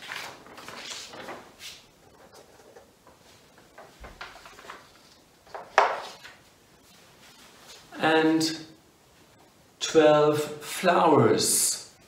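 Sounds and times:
paper rustling: 0.0s - 7.8s.

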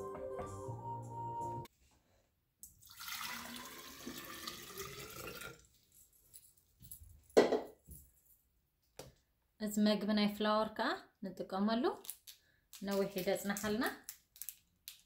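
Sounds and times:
water pouring into a glass carafe: 2.8s - 5.8s.

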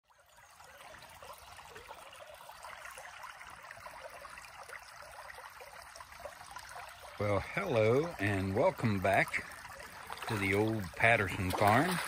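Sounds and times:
creek trickling over stones: 0.0s - 12.0s.

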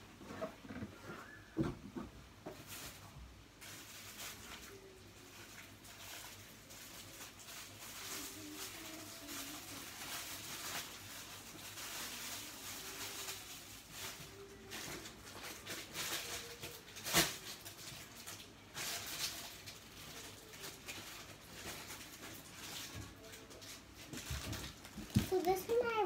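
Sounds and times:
rustling of toys and packaging: 0.0s - 26.0s.

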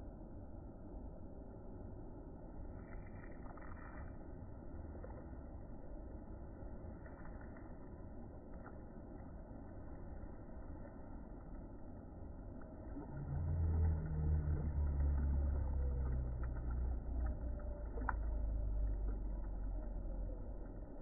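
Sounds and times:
passing vehicle engine rumble: 12.6s - 21.0s.

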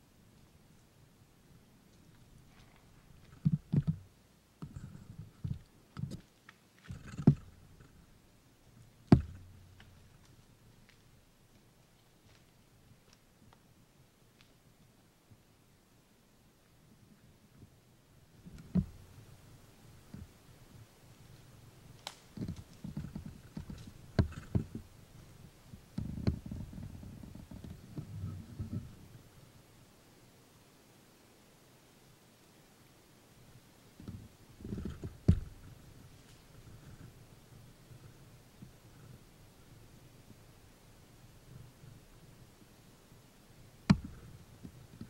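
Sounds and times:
soft thumps: 6.9s - 8.0s, 9.1s - 10.0s, 34.8s - 35.7s, 43.9s - 44.3s
sharp knocks: 9.1s - 9.6s
rustling: 18.4s - 29.4s, 34.0s - 43.2s.

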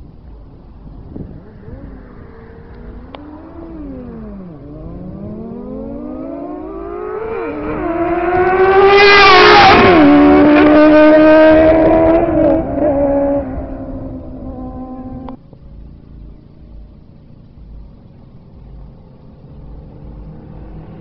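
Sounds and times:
motorcycle accelerating hard: 1.1s - 15.4s.

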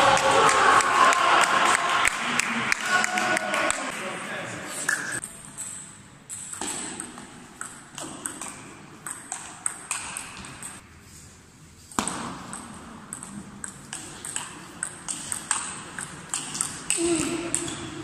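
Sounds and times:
sharp table tennis hit: 4.9s - 10.8s, 11.9s - 18.0s.

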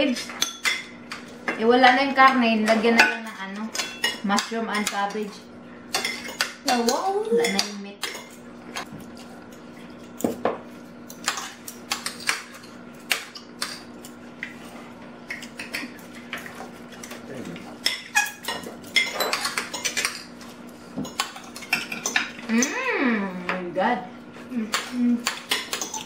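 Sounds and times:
cutlery clinking on plates: 17.8s - 20.3s, 24.8s - 26.0s.

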